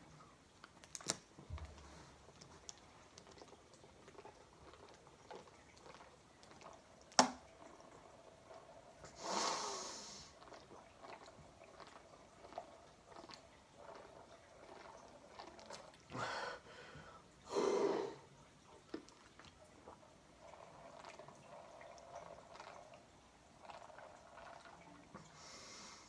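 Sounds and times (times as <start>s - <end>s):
gulping and swallowing: 1.6s - 9.0s, 10.4s - 16.2s, 18.8s - 25.2s.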